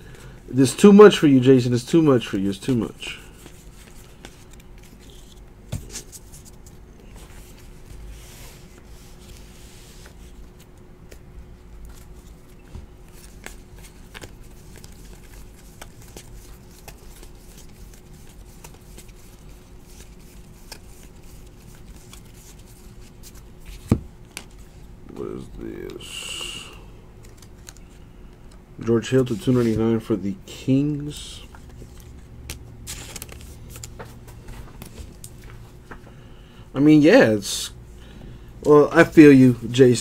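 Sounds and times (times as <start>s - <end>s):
faint steady hum: 0.0s - 40.0s
cards sliding and flicking: 11.8s - 24.7s, 31.5s - 35.4s.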